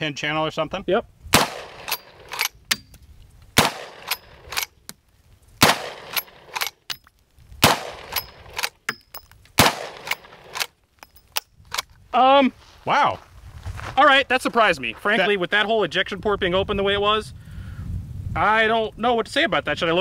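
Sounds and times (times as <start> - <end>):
rifle shots: 1.3 - 2.8, 3.6 - 4.7, 5.6 - 6.8, 7.6 - 8.8, 9.6 - 10.8
rifle lever clacking: 1.6 - 3.0, 3.6 - 4.7, 5.8 - 7.0, 8.0 - 11.9.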